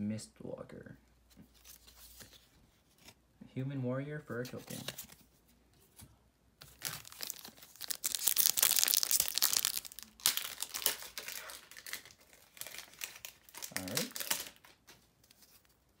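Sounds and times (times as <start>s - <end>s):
foil wrapper crinkling and tearing: 6.6s - 15.8s.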